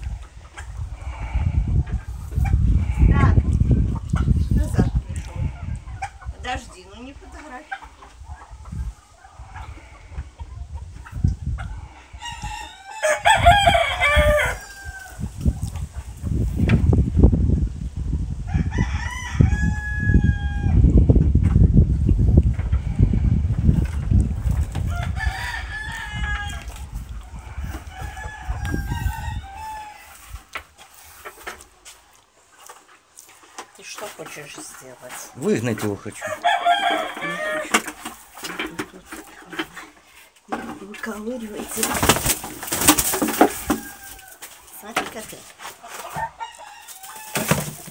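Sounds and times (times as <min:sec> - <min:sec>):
hens clucking softly: 0:00.0 - 0:17.0
rooster crowing: 0:12.2 - 0:15.2, 0:18.5 - 0:20.8, 0:24.8 - 0:26.7, 0:27.5 - 0:30.2, 0:36.2 - 0:37.8, 0:43.2 - 0:44.4, 0:46.1 - 0:47.6.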